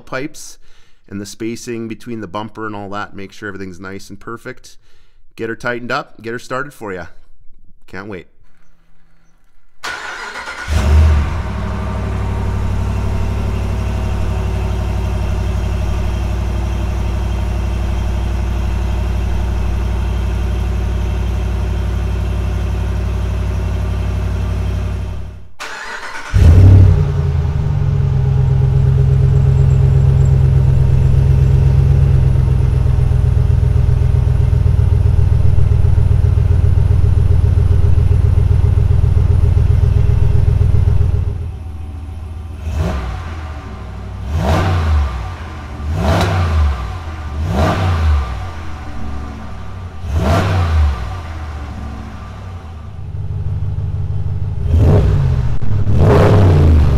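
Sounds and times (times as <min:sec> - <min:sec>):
truck engine starting: 0:08.4 - 0:56.9
engine revving: 0:09.8 - 0:56.9
pickup truck idling: 0:10.1 - 0:26.0, 0:27.0 - 0:44.2, 0:48.1 - 0:54.6.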